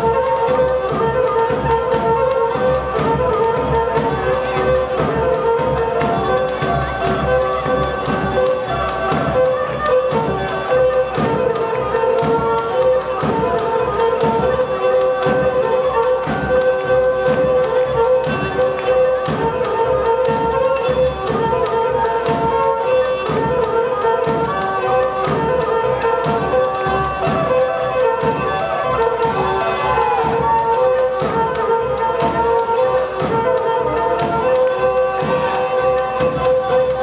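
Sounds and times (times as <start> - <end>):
bowed fiddle-like melody: 0.0 - 37.0.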